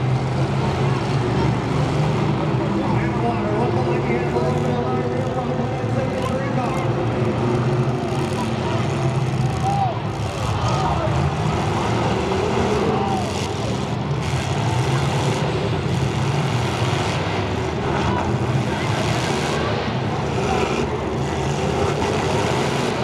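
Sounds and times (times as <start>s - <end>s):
car engines din: 0.0s - 23.0s.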